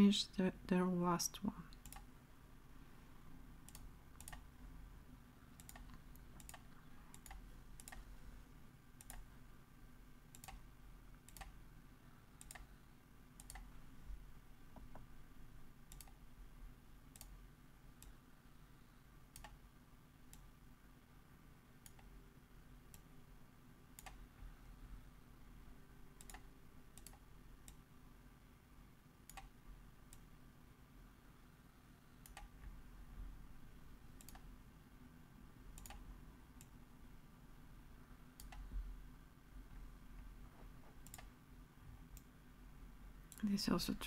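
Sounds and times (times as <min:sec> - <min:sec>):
low steady hum: 0:00.0 - 0:44.0
computer mouse clicks: 0:01.7 - 0:02.1, 0:03.6 - 0:04.5, 0:05.5 - 0:08.1, 0:09.0 - 0:09.3, 0:10.3 - 0:10.6, 0:11.2 - 0:11.6, 0:12.4 - 0:12.7, 0:13.4 - 0:13.7, 0:15.9 - 0:16.2, 0:17.1 - 0:17.4, 0:18.0 - 0:18.2, 0:19.3 - 0:19.6, 0:20.3 - 0:20.5, 0:21.8 - 0:22.1, 0:24.0 - 0:24.2, 0:26.2 - 0:27.8, 0:29.2 - 0:30.3, 0:32.2 - 0:32.7, 0:34.2 - 0:34.5, 0:35.8 - 0:36.8, 0:38.4 - 0:38.7, 0:40.9 - 0:41.3.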